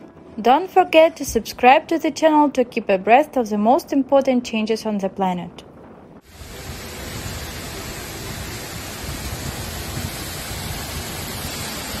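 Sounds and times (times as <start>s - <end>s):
heavy rain pouring: 5.8s - 12.0s
floodwater running: 6.2s - 12.0s.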